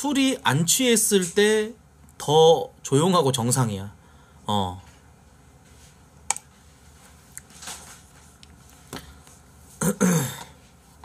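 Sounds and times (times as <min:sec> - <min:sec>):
man clearing his throat: 0:09.8 - 0:10.6.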